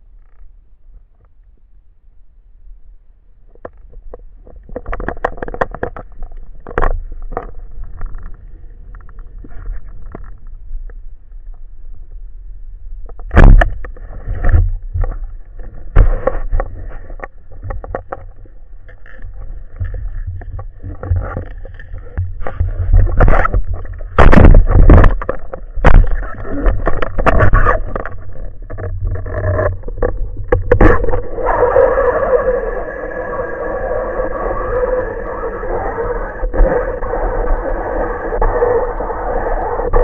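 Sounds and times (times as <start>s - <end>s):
knocks and bumps: 19.1s - 31.2s.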